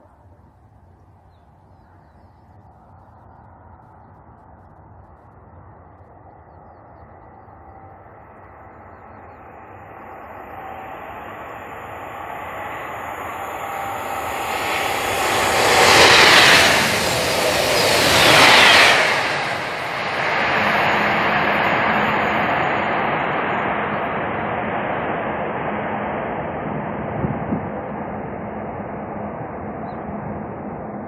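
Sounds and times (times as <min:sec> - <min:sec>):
high-speed train rushing past: 0:08.8 - 0:31.0.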